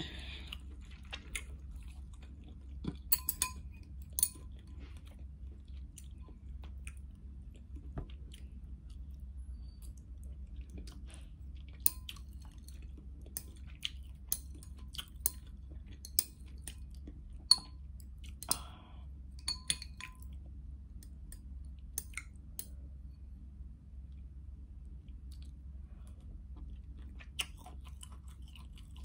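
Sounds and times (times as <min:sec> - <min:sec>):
steady low hum: 0:00.0 - 0:29.0
wet chewing and mouth clicks: 0:00.4 - 0:18.8, 0:25.1 - 0:29.0
chopsticks clinking against glass bowl: 0:03.1 - 0:04.6, 0:16.0 - 0:16.4, 0:17.5 - 0:17.8, 0:19.4 - 0:20.3.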